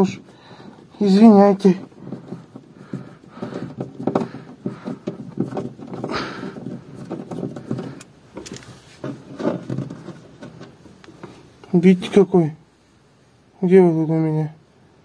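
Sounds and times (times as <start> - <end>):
wooden cabinet parts knocking: 1.2 - 11.4.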